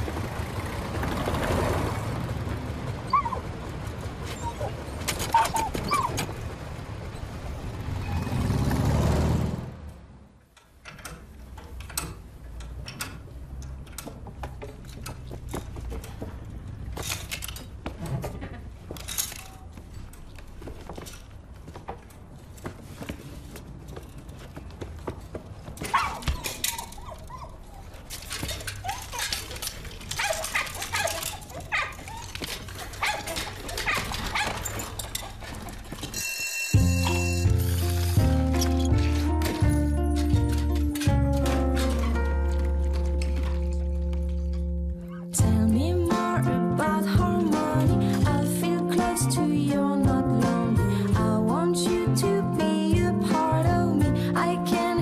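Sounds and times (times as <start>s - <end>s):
robot dog yips and whimpers: 3.1s - 3.4s, 4.2s - 6.2s, 25.9s - 28.0s, 28.8s - 29.5s, 30.2s - 32.4s
metallic clicks and clanks: 10.4s - 22.3s, 25.8s - 46.2s.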